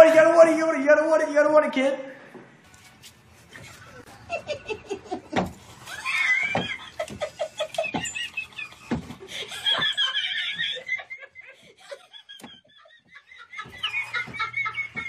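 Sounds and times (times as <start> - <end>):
person giggling: 3.5 - 15.0.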